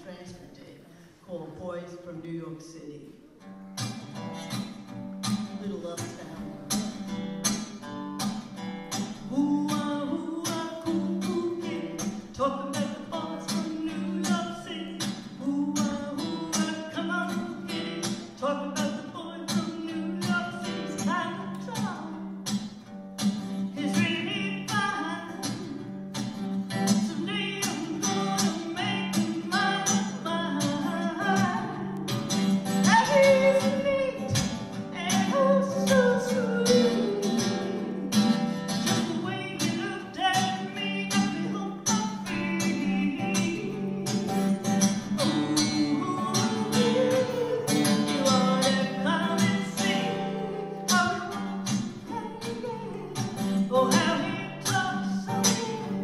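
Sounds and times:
acoustic guitar strumming: 1.9 - 56.0
woman singing: 9.2 - 22.3, 23.6 - 26.0, 26.8 - 56.0.

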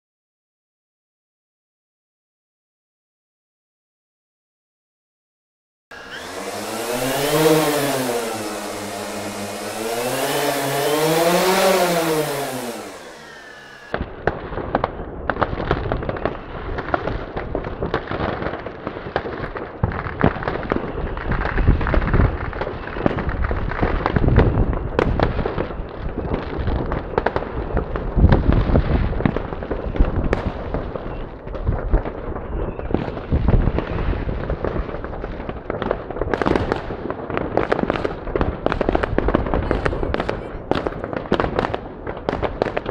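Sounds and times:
drone propellers whining: 5.9 - 14.0
fireworks banging and popping: 7.2 - 42.9.

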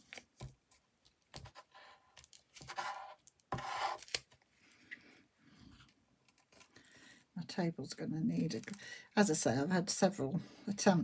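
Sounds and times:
paper rustling and scraping: 1.3 - 4.3.

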